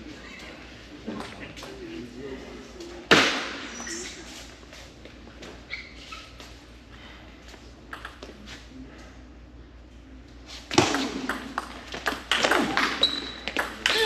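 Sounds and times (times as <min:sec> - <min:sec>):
table tennis ball hits: 0:10.7 - 0:14.0.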